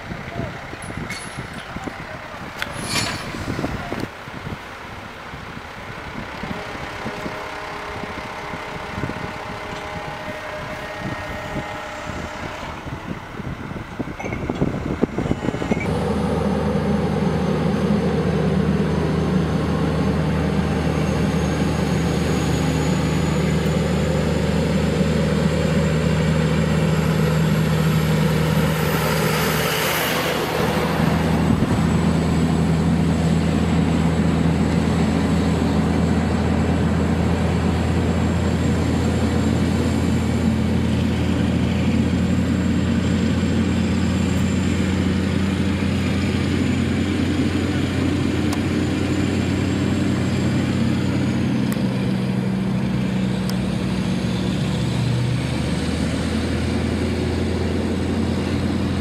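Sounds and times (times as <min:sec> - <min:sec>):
diesel truck engines droning: 0:00.0 - 0:59.0
rising high whistle: 0:06.5 - 0:24.8.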